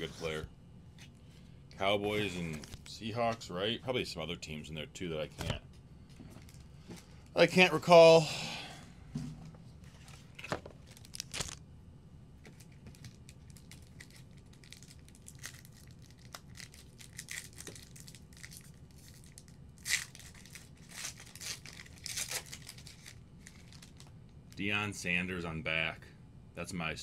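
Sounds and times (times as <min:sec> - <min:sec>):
wrapper crinkling and tearing: 0:10.3 - 0:11.6, 0:12.5 - 0:24.1.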